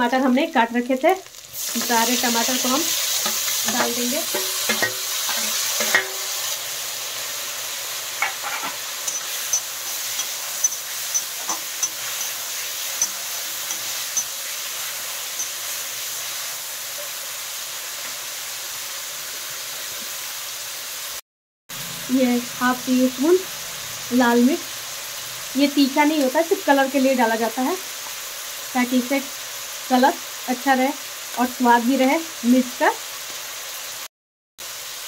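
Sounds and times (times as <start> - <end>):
tomatoes sizzling in hot oil: 0.0 - 35.0
spatula scraping and knocking pan: 3.1 - 6.4, 8.2 - 14.5.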